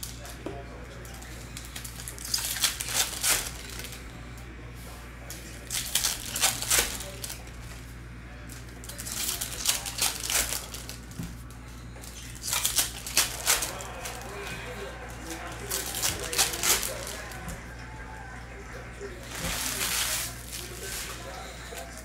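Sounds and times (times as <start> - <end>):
steady low hum: 0.0 - 22.0
wrappers crinkling and tearing: 1.0 - 4.0, 5.6 - 7.6, 8.4 - 11.2, 12.0 - 17.4, 19.1 - 22.0.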